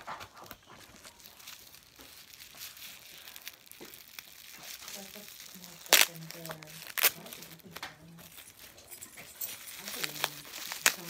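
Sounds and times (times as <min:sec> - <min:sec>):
packaging crinkling and rustling: 0:00.0 - 0:11.0.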